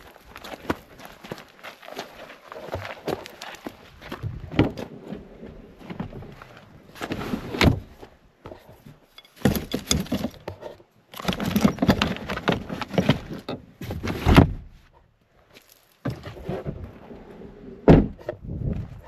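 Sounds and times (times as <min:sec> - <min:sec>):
rustling and knocking of items: 0:05.8 - 0:14.7.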